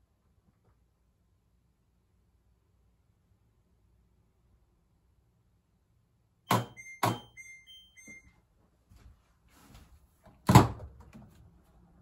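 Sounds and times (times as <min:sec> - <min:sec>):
washing machine clicks: 0:06.5 - 0:07.5.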